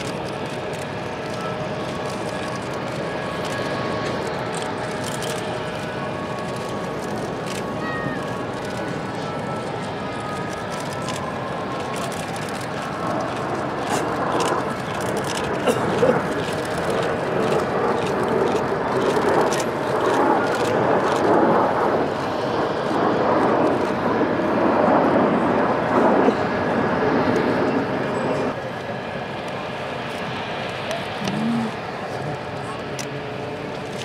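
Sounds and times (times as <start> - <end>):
jet aircraft rushing: 0.0 - 34.0.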